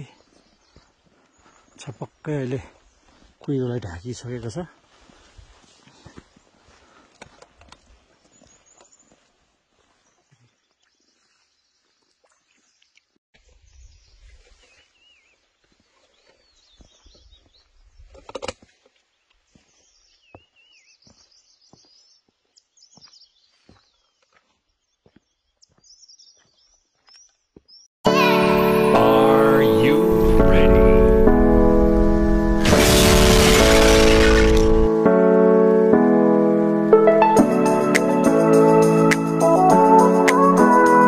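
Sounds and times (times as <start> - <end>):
small birds chirping: 0.0 - 4.7, 7.8 - 18.2, 19.1 - 27.9.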